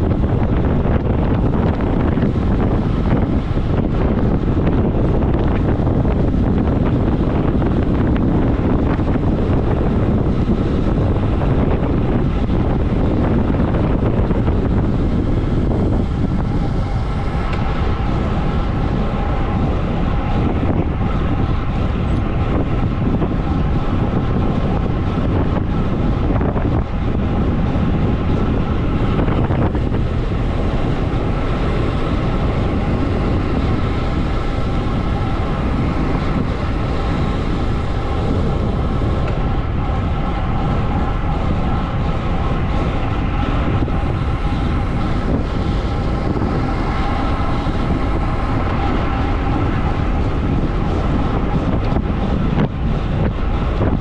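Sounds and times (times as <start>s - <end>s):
bike tyres on asphalt: 0.0s - 54.0s
wind buffeting microphone: 0.0s - 54.0s.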